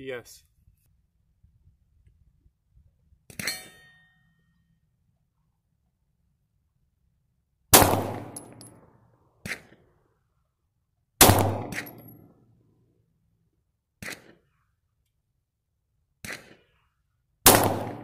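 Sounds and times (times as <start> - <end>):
pistol shots: 7.7 - 8.8, 11.2 - 12.2, 14.0 - 14.4, 16.2 - 16.6, 17.5 - 18.0.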